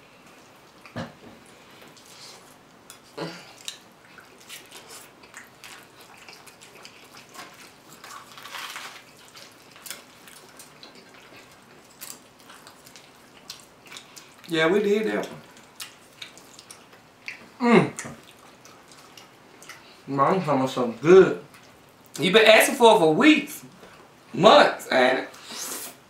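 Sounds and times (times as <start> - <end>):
wet chewing and slurping: 0.3 - 14.5, 15.1 - 20.1.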